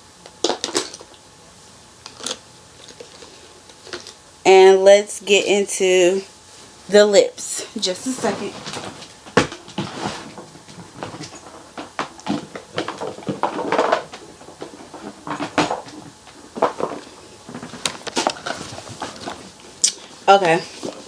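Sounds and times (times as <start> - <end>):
small objects clattering in a box: 8.3 - 19.4.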